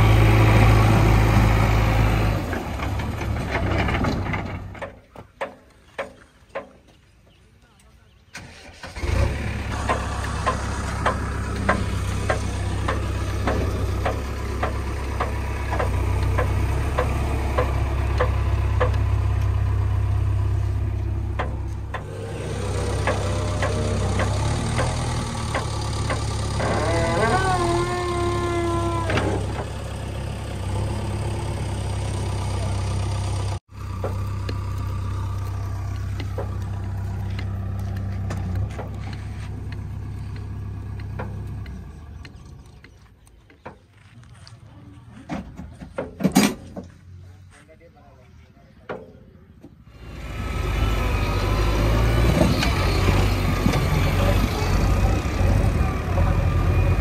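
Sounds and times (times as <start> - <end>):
diesel engine idling: 0.0 - 4.8, 8.4 - 43.3, 49.9 - 57.0
regular clicks: 34.0 - 43.9.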